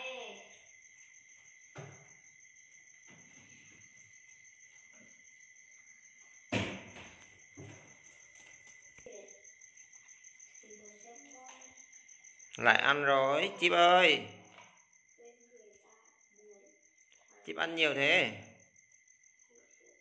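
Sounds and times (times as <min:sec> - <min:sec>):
crickets trilling: 0:00.0 - 0:20.0
loud knock: 0:06.5 - 0:07.2.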